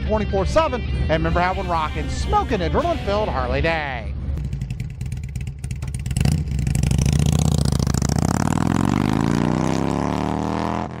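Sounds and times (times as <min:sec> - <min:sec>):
motorcycle engine revving: 0:04.4 - 0:11.0.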